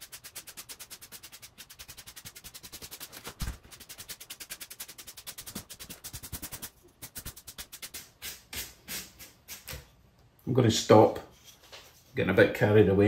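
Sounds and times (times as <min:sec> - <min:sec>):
paintbrush scratching on styrofoam: 0:00.0 - 0:08.4.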